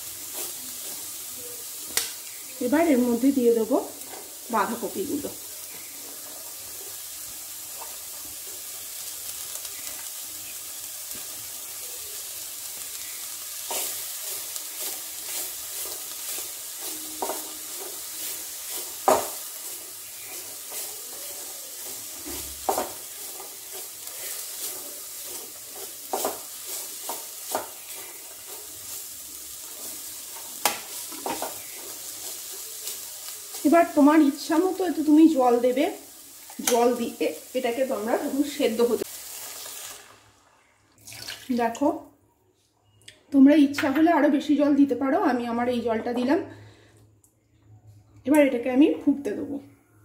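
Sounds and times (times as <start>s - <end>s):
food sizzling in a pan: 0.0s - 42.0s
spatula scraping a pan: 13.6s - 33.8s.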